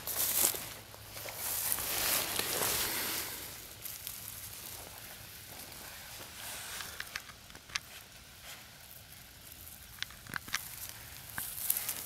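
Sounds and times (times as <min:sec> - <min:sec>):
dry straw crackling and rustling: 0:00.0 - 0:12.0.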